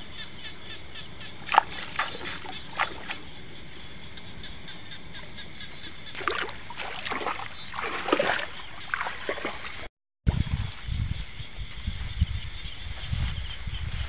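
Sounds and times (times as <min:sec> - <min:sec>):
shallow water splashing: 0:01.4 - 0:09.9.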